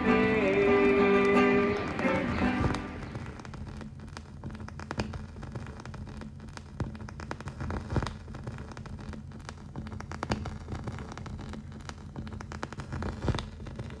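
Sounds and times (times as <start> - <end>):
film crackles and pops: 0.0 - 14.0
low steady hum: 0.0 - 14.0.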